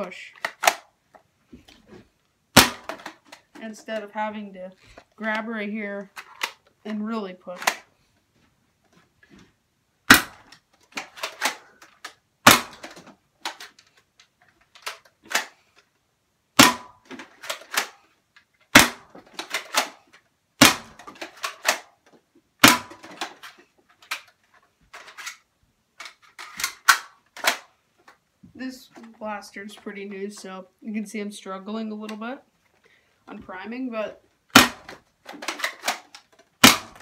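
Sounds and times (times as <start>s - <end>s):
plastic clicks and rattles: 0.0s - 1.2s, 2.8s - 4.1s, 10.2s - 15.9s, 16.9s - 28.2s, 34.7s - 37.0s.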